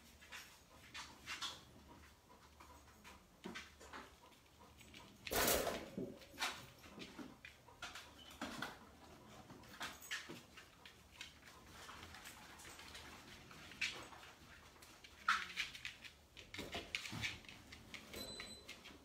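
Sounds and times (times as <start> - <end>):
puppies scuffling clicks and knocks: 0.0 - 19.0.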